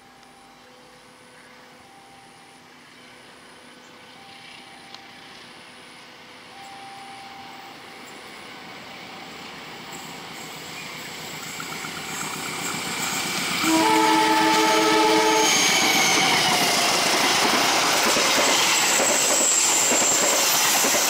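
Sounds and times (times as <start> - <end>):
distant train rumble: 0.1 - 21.0.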